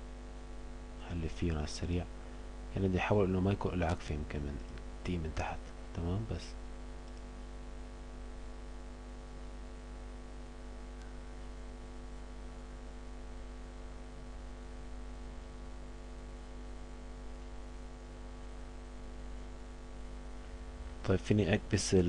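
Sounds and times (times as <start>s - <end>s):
electrical mains hum: 0.0s - 22.0s
faint click: 7.0s - 7.3s, 10.9s - 11.2s.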